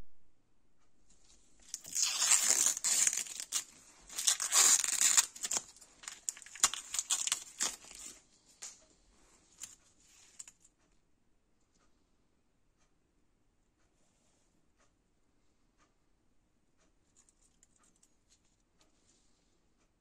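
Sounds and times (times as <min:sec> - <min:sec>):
plastic wrap crinkling and tearing: 0:01.6 - 0:08.2.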